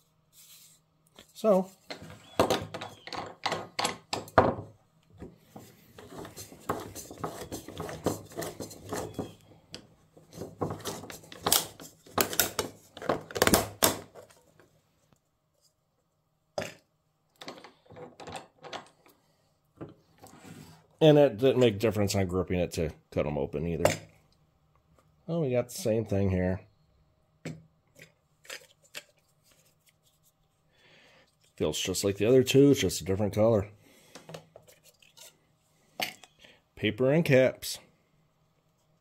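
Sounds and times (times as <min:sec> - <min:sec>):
metallic clicks and scrapes: 0:34.6 - 0:35.4.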